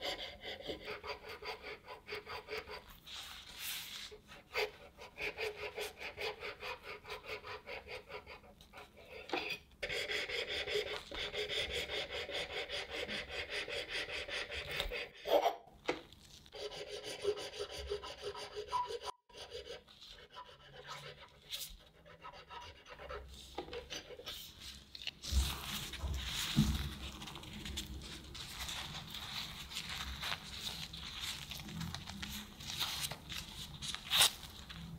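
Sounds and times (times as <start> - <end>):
wire sawing through cake: 0.0 - 3.1, 4.3 - 15.4.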